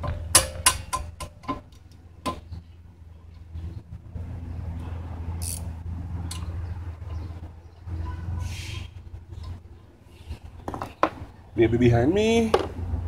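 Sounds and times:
wrench clicking on metal: 5.4s - 5.7s.

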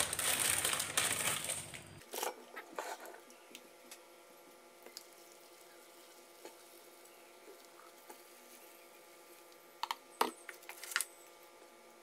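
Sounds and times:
plastic packet rustling and clicking: 0.0s - 2.3s, 9.8s - 11.1s.

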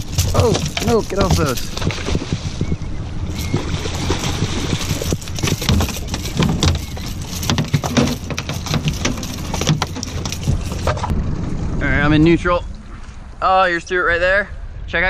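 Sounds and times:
outboard motor humming: 0.0s - 12.0s
clatter of knocks and taps: 5.4s - 11.1s.

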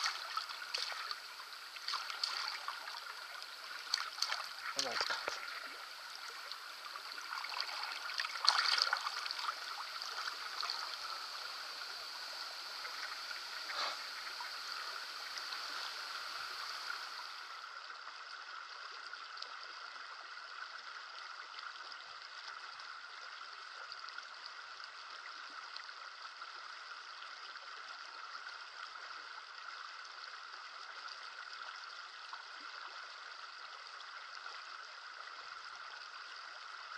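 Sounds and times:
water splashes: 0.0s - 17.8s
stream running over stones: 0.0s - 36.9s.

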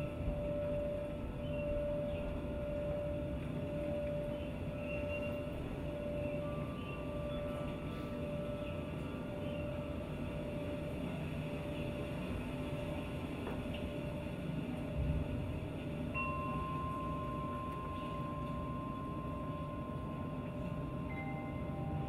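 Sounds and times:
higher held tone: 0.0s - 11.0s, 16.2s - 22.0s
ambient music: 0.0s - 12.9s, 16.1s - 22.0s
long held tone: 0.0s - 22.0s.

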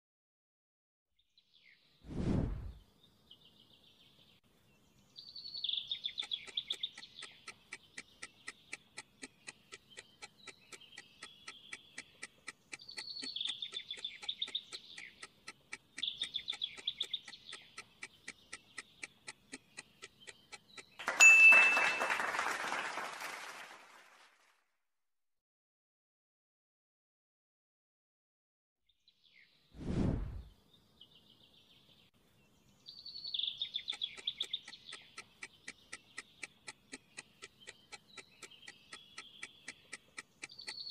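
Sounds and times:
birdsong: 1.2s - 2.0s, 2.7s - 22.2s, 28.9s - 29.7s, 30.4s - 40.9s
timer ticking: 5.8s - 21.6s, 33.4s - 40.9s.

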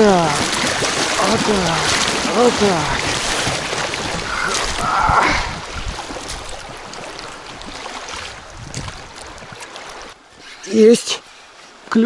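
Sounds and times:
river water splashing around raft: 0.0s - 12.0s.

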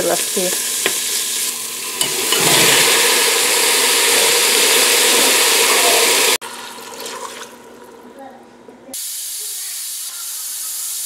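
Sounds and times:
vegetables sizzling in hot oil: 0.0s - 6.4s
liquid pouring and splashing: 1.2s - 8.1s.

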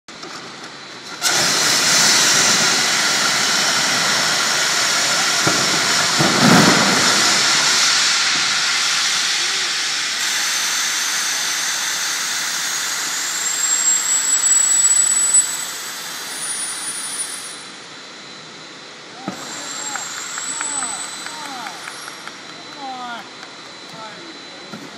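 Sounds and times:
evacuation slide inflating hiss: 1.1s - 17.9s
thin rising whistle: 13.2s - 17.9s, 19.3s - 22.4s.

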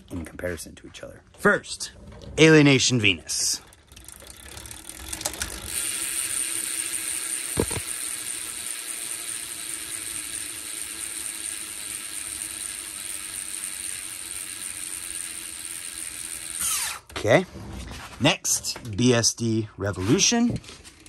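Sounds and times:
bicycle hub spinning whir: 2.4s - 17.2s.

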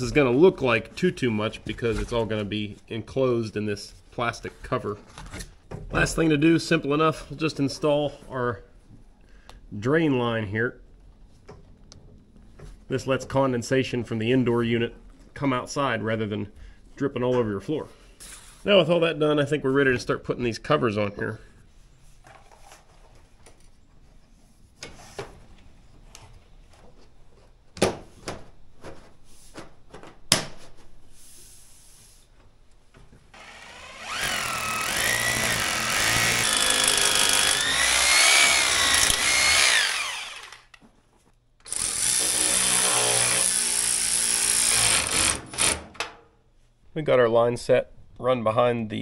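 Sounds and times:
handheld power drill whining: 33.3s - 40.8s, 41.6s - 45.8s.

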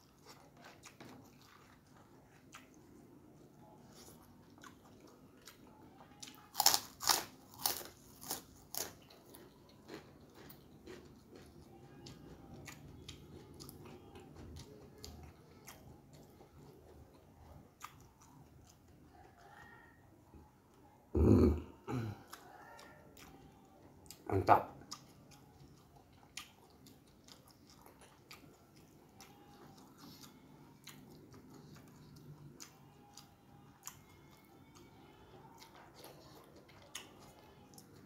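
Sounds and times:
chewing with small clicks: 0.0s - 21.0s, 22.1s - 38.0s
crunching fried cracker: 6.0s - 16.5s.

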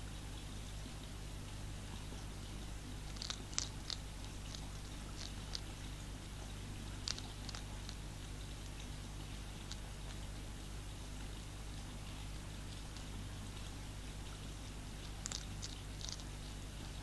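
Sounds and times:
steady low hum: 0.0s - 17.0s
hedgehog crunching pellet food: 2.6s - 10.5s, 12.7s - 17.0s.

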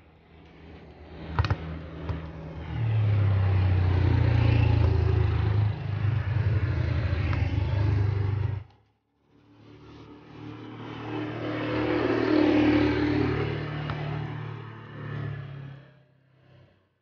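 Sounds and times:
scooter engine humming: 1.4s - 8.7s.

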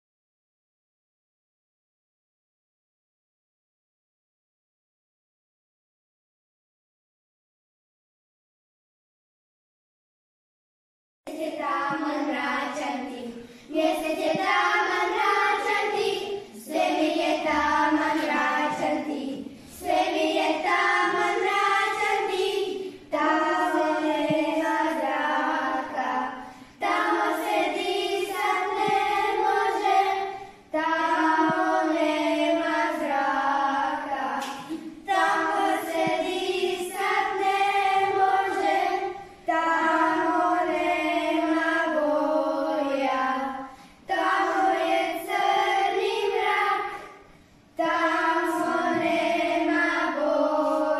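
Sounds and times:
children singing unaccompanied: 11.3s - 50.9s.

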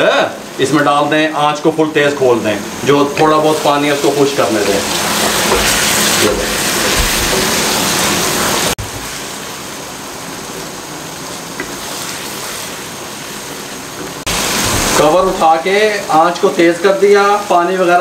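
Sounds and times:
curry sizzling and bubbling in a wok: 2.6s - 18.0s
wooden spatula stirring: 3.2s - 8.2s.

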